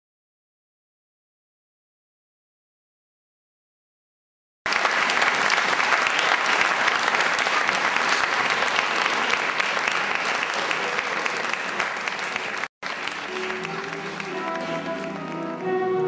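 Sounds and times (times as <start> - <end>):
audience applauding: 4.7 - 16.0.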